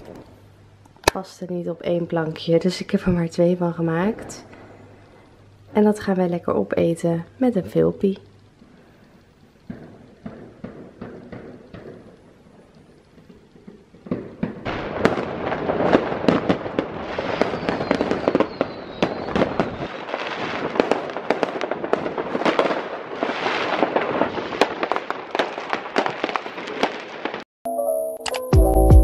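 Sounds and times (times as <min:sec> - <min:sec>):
fireworks bangs and pops: 0:09.6 - 0:27.5.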